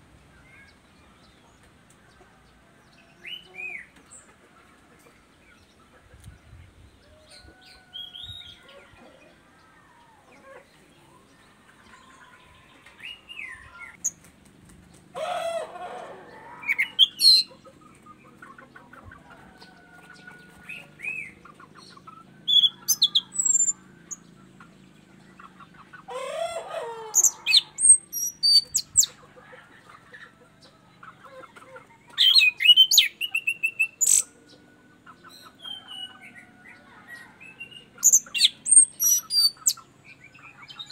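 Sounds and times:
bird chattering phrases: 16.7s - 17.6s.

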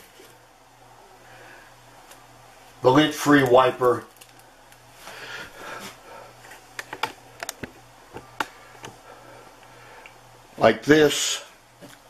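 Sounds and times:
foil packet rustling: 3.4s - 4.5s
crisp clicks and crinkles: 3.4s - 4.8s.

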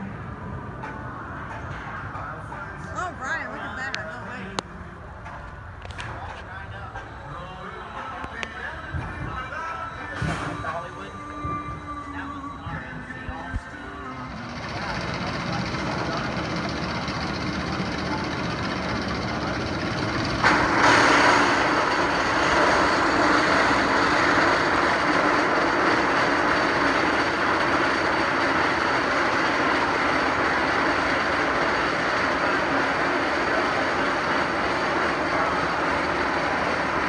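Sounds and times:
roller coaster rumbling on track: 0.0s - 37.0s.

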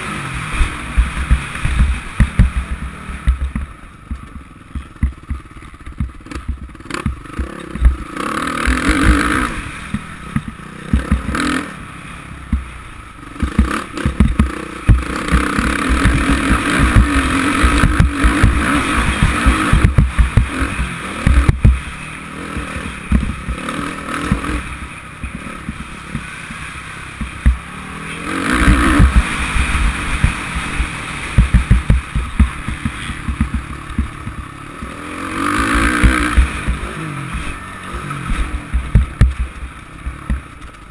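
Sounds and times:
motocross engine revving: 0.0s - 40.9s
low thumps: 0.6s - 8.1s, 13.4s - 21.9s, 22.6s - 26.3s, 27.2s - 27.7s, 28.5s - 35.0s, 35.6s - 40.9s.

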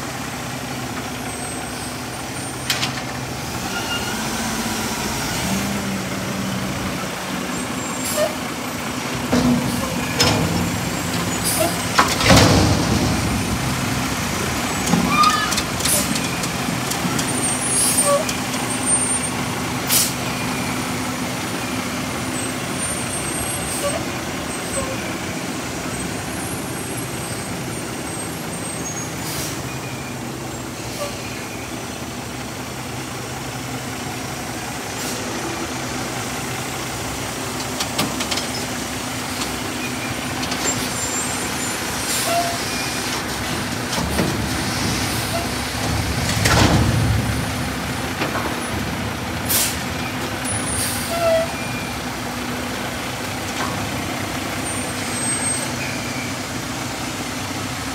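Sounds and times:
truck engine under hydraulic load: 0.0s - 57.9s
dumpster and forks clanking: 9.2s - 18.6s, 42.1s - 51.5s.

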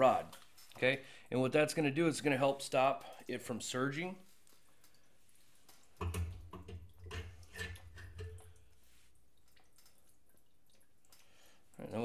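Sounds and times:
gasoline dripping: 0.2s - 12.0s.

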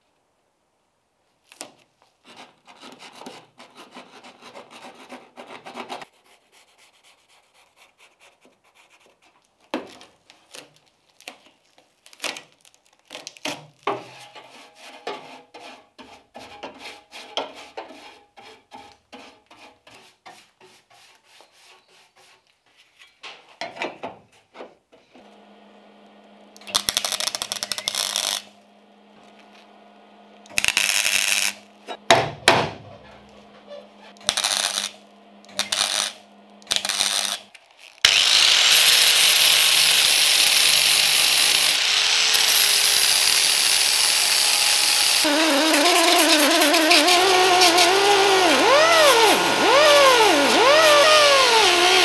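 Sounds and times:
masking tape tearing and peeling: 12.0s - 13.9s, 26.6s - 28.5s, 30.5s - 31.6s, 34.2s - 52.0s.

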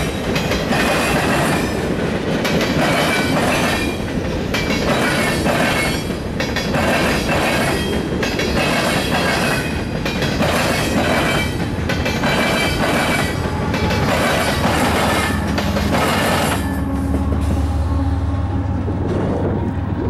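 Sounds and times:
train wheels clacking over rail joints: 0.0s - 17.7s
high wheel squeal: 12.3s - 17.9s.

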